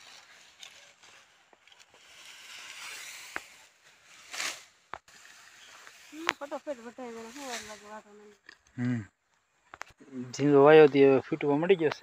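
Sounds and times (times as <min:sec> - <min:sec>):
rustling of tall grass: 0:00.0 - 0:08.4.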